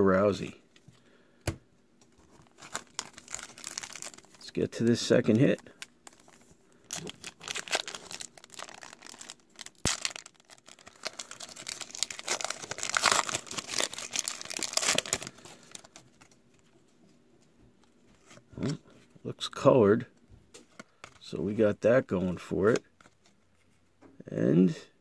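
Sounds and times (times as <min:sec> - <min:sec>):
foil wrapper crinkling and tearing: 0:02.2 - 0:16.3.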